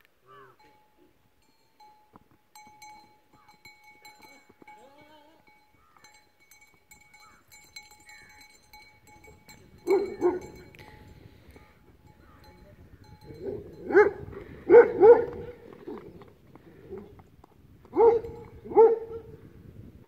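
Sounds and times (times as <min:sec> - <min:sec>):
dog barking: 0:09.8 - 0:10.5, 0:13.4 - 0:15.4, 0:18.0 - 0:19.3.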